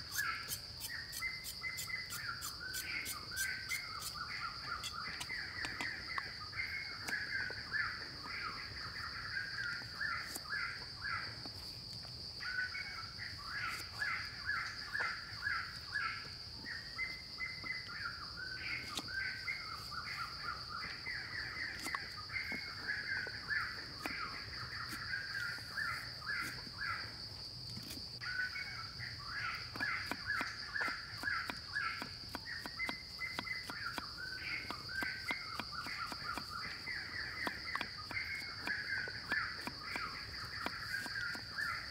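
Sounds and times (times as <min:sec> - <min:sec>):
birds calling: 0:00.0 - 0:11.6, 0:12.4 - 0:27.1, 0:28.2 - 0:41.9
knife chopping carrot on wood: 0:29.7 - 0:36.8, 0:37.4 - 0:41.7.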